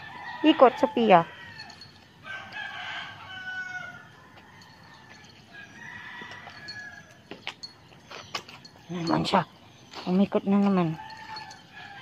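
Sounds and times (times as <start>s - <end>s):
rooster crowing: 0.0s - 7.2s, 11.0s - 12.0s.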